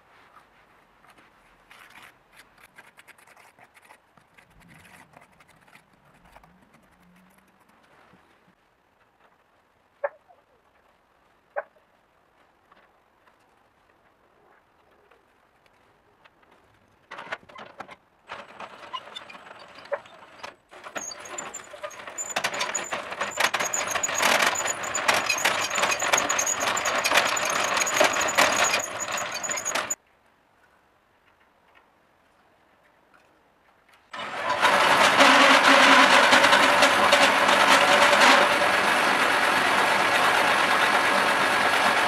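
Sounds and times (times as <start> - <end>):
gear teeth clattering and grinding: 1.7 - 7.8, 20.7 - 30.0
cordless drill whining: 20.8 - 30.0.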